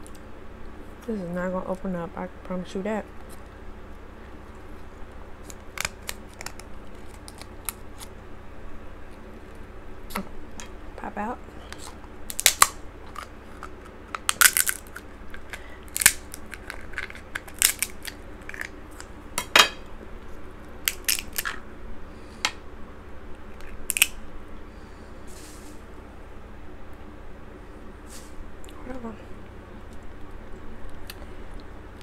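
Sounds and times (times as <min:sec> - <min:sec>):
crab shells cracking: 0:05.4 - 0:08.2, 0:11.8 - 0:19.2, 0:20.8 - 0:21.6, 0:23.6 - 0:24.2.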